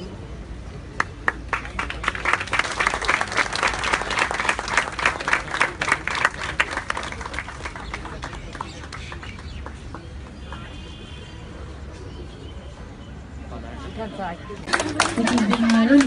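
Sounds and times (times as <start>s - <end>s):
crowd applauding: 1.0s - 10.8s, 14.6s - 16.0s.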